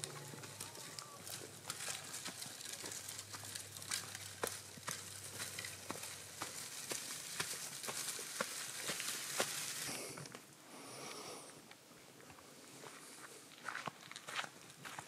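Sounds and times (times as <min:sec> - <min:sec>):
light clicks and crackles: 0:00.0 - 0:10.5
faint hiss: 0:08.8 - 0:11.8.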